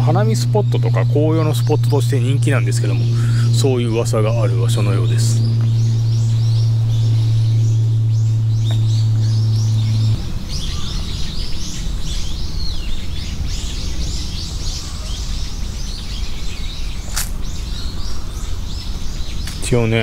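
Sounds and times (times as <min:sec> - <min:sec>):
loud low hum: 0:00.0 - 0:20.0
low outdoor background rumble: 0:00.0 - 0:20.0
small birds chirping: 0:00.0 - 0:20.0
sharp click: 0:17.1 - 0:17.4, 0:19.4 - 0:19.7.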